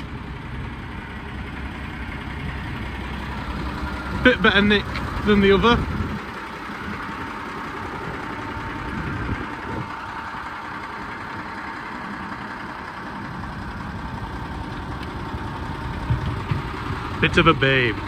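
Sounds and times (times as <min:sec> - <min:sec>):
diesel truck engine idling: 0:00.0 - 0:18.0.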